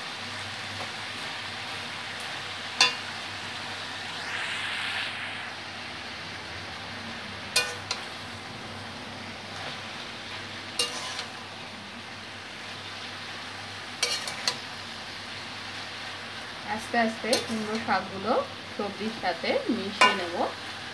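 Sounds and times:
vegetables sizzling in hot oil: 0:00.0 - 0:20.9
metal spatula clinking pan: 0:07.6 - 0:08.0, 0:20.0 - 0:20.3.

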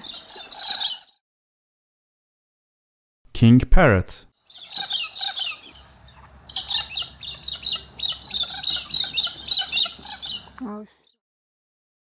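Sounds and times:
parrots calling: 0:00.0 - 0:01.2, 0:04.5 - 0:10.6.

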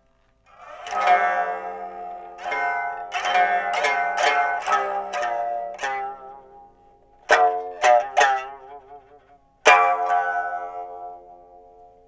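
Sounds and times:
plucked lute: 0:00.0 - 0:12.0.

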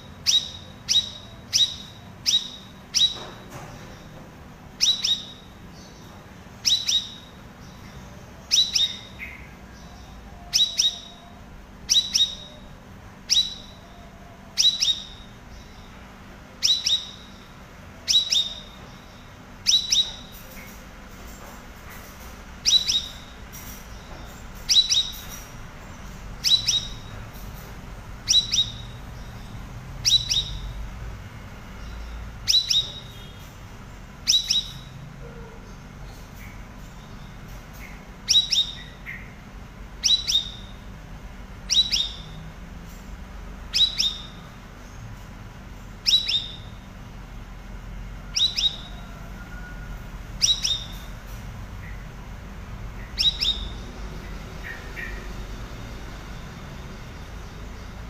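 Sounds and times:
bird calling: 0:48.2 - 0:52.2, 0:52.8 - 0:55.5.

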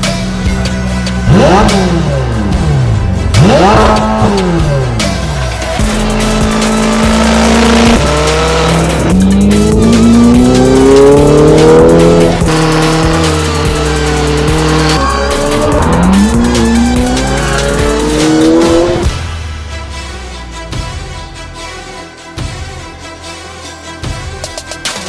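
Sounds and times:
music: 0:00.0 - 0:25.0
sports car accelerating through gears: 0:01.2 - 0:19.1.

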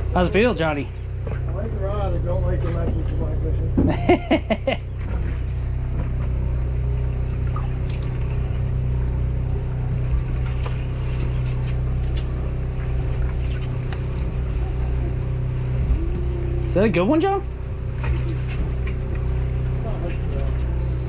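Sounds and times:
boat engine humming: 0:00.0 - 0:21.0
water splashing: 0:07.2 - 0:08.5, 0:17.5 - 0:19.5.

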